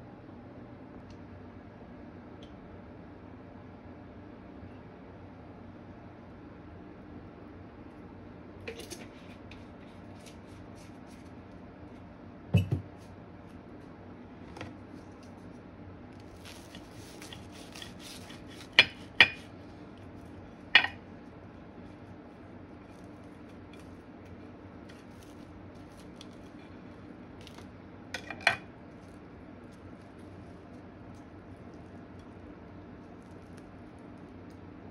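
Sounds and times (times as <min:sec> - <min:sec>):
crackling of toasted bread: 0:14.8 - 0:34.9.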